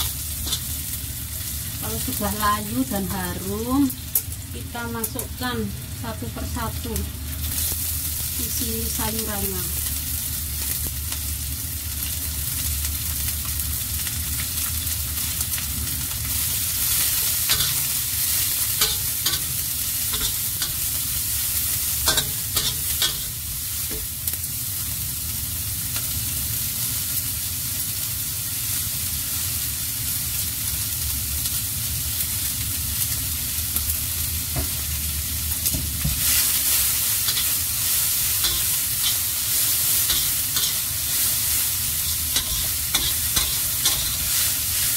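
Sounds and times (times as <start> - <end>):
metal spatula scraping wok: 0.0 - 0.9, 16.8 - 24.1, 36.3 - 44.9
vegetables sizzling in hot oil: 0.0 - 44.9.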